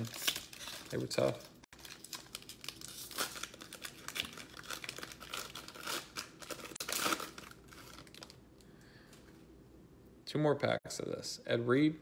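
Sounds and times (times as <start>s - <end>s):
foil wrapper crinkling and tearing: 0.0s - 8.4s.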